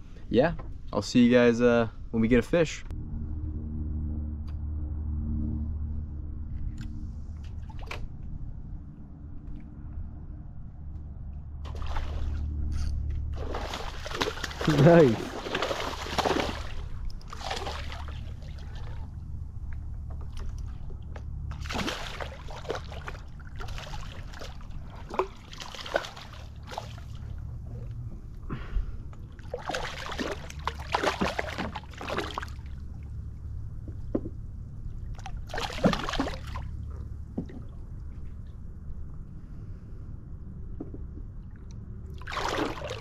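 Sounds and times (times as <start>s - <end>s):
steady low hum: 0.0s - 43.0s
water splashing against a boat: 11.6s - 12.6s, 13.3s - 27.8s, 28.6s - 38.5s, 41.4s - 43.0s.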